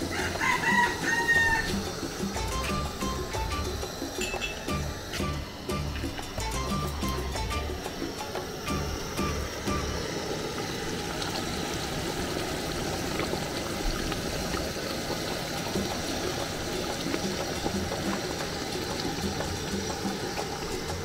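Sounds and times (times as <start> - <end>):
liquid pouring and splashing: 0.0 - 21.0.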